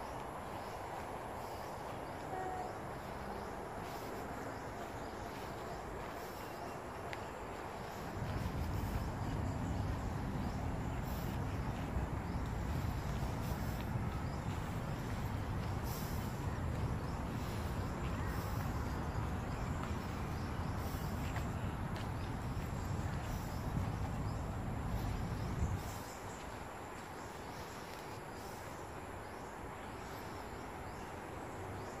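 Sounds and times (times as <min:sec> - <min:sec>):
wind rumble on microphone: 0:07.4 - 0:29.8.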